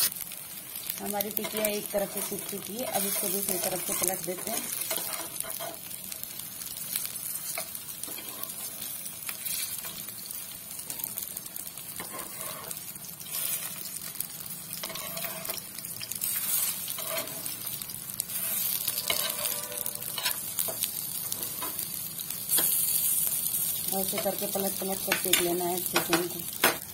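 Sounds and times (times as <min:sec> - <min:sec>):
patties sizzling in oil: 0:00.0 - 0:26.9
fork and spoon scraping pan: 0:02.9 - 0:05.8, 0:08.1 - 0:08.7, 0:12.0 - 0:13.7, 0:14.8 - 0:15.6, 0:16.4 - 0:17.5, 0:18.4 - 0:20.4.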